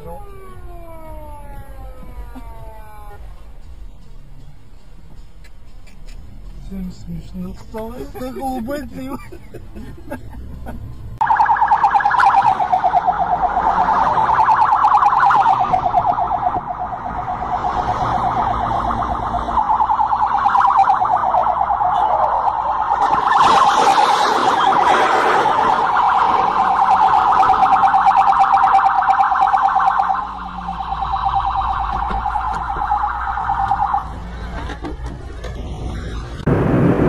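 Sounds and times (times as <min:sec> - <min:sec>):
police siren warbling: 0:00.0 - 0:03.3, 0:11.2 - 0:34.2.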